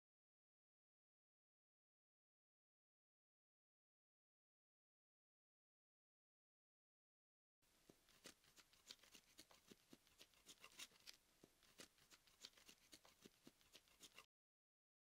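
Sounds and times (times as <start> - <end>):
small objects clicking and tapping: 7.9 - 14.3.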